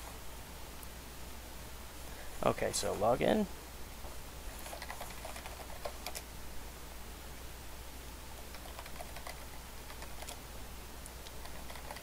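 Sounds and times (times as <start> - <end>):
faint low hum: 0.0 - 12.0
keyboard typing: 4.6 - 6.3, 8.4 - 10.4, 11.2 - 12.0.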